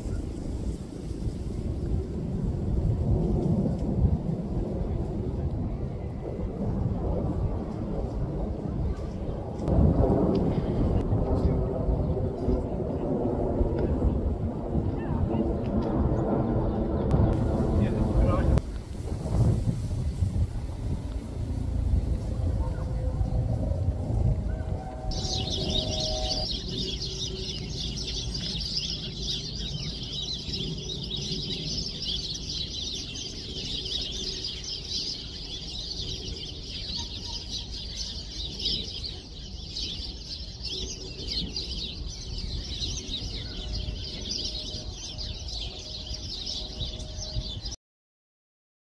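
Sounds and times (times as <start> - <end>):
low rumble: 0.2 - 31.9
flock of small birds chattering: 16.8 - 18.7, 20.1 - 47.8.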